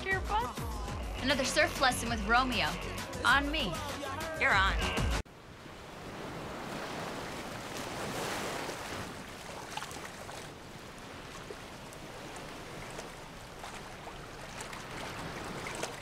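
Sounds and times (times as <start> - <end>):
ocean surf washing onto beach: 5.3 - 16.0.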